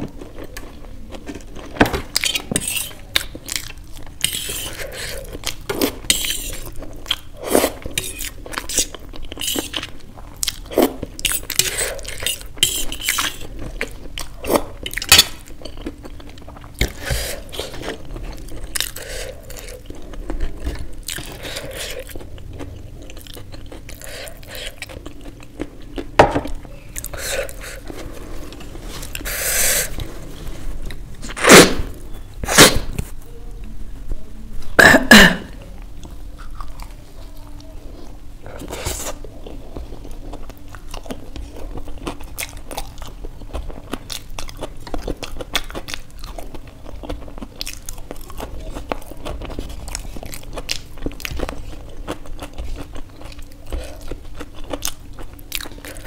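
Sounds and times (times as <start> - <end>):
person chewing food: 0.0 - 33.1, 36.0 - 56.0
fork scraping on metal plate: 11.6 - 13.4.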